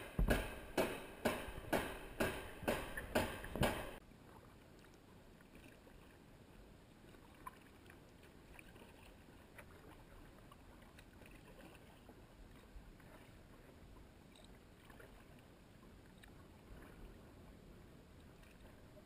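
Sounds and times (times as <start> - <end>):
pile-driving hammer strikes: 0.0 - 4.0
water around a kayak: 0.0 - 19.0
small knocks: 0.1 - 4.0.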